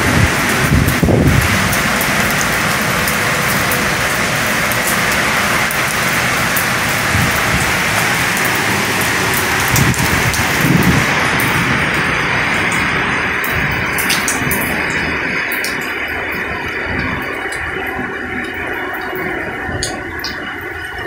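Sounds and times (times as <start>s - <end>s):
heavy rain downpour: 0.0s - 21.0s
raindrops ticking close by: 0.0s - 21.0s.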